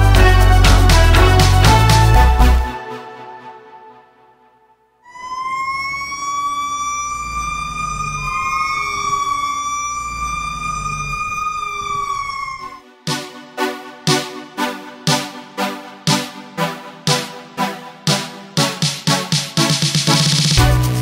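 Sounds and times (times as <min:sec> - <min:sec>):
music beat: 0:00.0 - 0:03.7, 0:12.9 - 0:21.0
fire engine siren wailing: 0:05.0 - 0:12.9.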